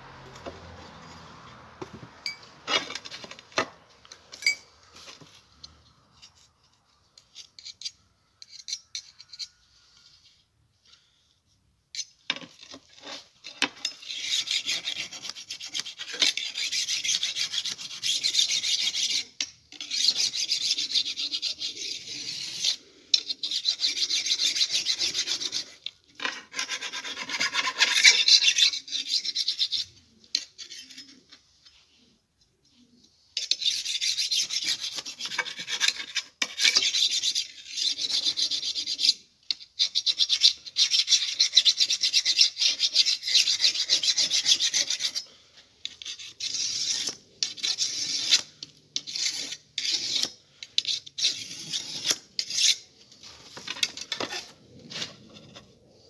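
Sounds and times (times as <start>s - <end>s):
file rasping on steel: 12.9s - 31.1s, 33.4s - 45.3s, 45.9s - 52.9s.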